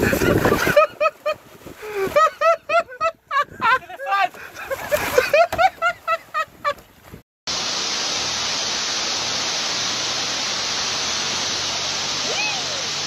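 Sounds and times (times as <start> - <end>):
heavy rain pouring: 7.5 - 13.0.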